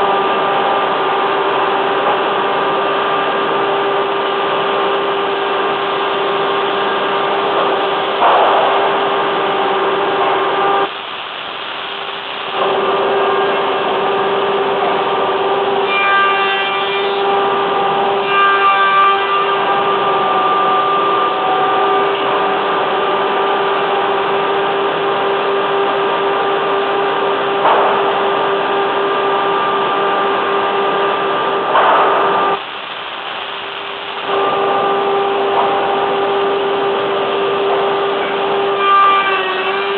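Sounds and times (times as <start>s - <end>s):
machine noise with steady tone: 0.0s - 39.9s.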